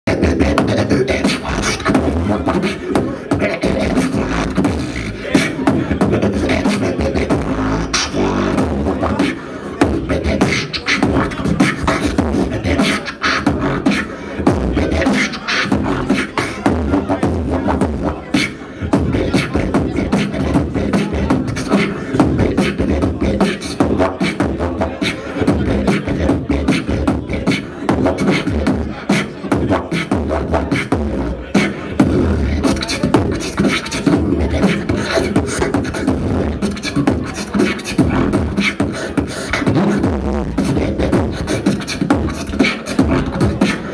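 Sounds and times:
beatboxing through a microphone: 0:00.0 - 0:43.9
hummed bass line: 0:00.1 - 0:09.2, 0:13.4 - 0:18.3, 0:40.0 - 0:43.8.

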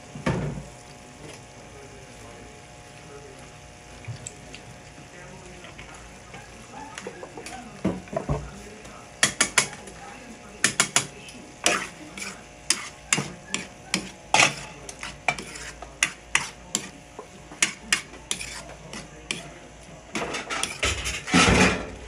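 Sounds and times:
sauce sizzling: 0:00.0 - 0:20.9
metal spatula scraping a pan: 0:10.7 - 0:21.7.

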